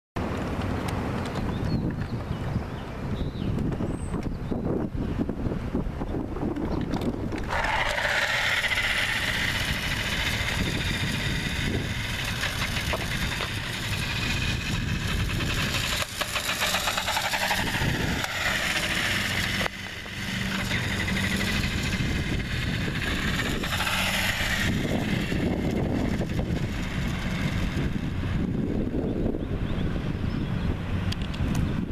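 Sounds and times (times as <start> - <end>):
wheels rattling over grit: 0.2 - 31.9
wind rumbling on microphone: 0.2 - 31.9
toy car electric motor whining: 6.8 - 29.2.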